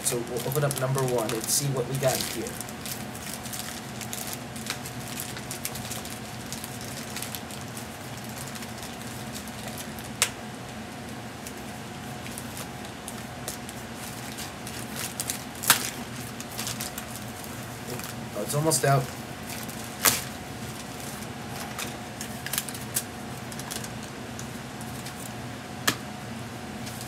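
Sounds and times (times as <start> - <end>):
steady low hum: 0.0 - 27.0
envelope being torn open: 19.4 - 24.0.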